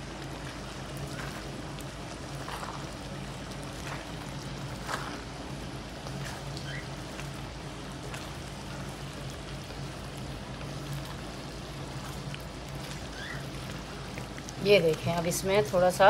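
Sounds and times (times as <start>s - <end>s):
steady low hum: 0.0s - 16.0s
wooden spatula scraping: 3.7s - 7.3s.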